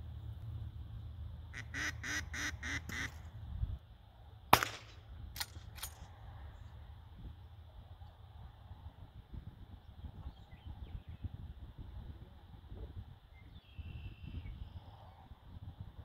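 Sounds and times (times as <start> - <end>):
duck call quacks: 1.5 - 3.2
loud shotgun shot: 4.5 - 5.6
faint sharp cracks: 4.5 - 6.0.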